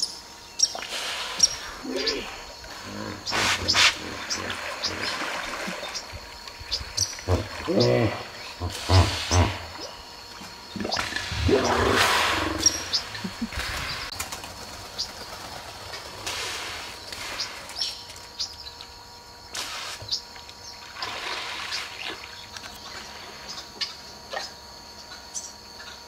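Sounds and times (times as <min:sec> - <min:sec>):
birds chirping: 0:00.0 - 0:15.6
deep hippo call: 0:01.5 - 0:06.0, 0:07.2 - 0:09.9, 0:10.8 - 0:13.6
hippos rushing in water: 0:02.1 - 0:06.5, 0:07.2 - 0:09.9, 0:10.8 - 0:14.1, 0:20.9 - 0:22.3.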